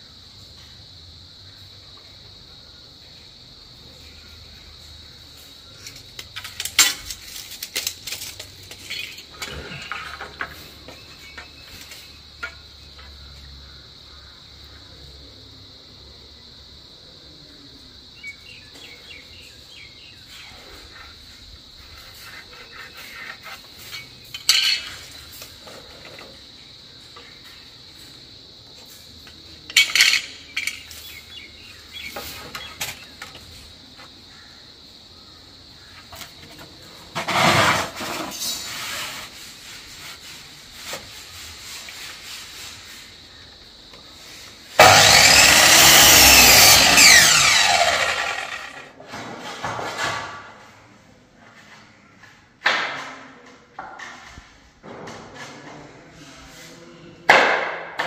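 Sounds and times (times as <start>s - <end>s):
electric mitre saw cutting wood: 44.8s - 48.9s
knocks of wood and tools: 52.2s - 55.5s, 57.3s - 58.0s.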